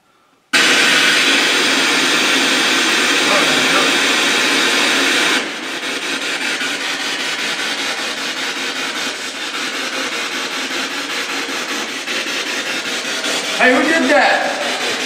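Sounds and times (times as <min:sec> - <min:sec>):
radio scanner static: 0:03.0 - 0:04.8.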